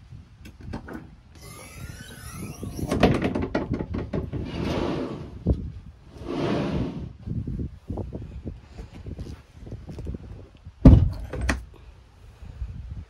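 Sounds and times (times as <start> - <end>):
hatch hinge squealing: 1.4 - 3.1.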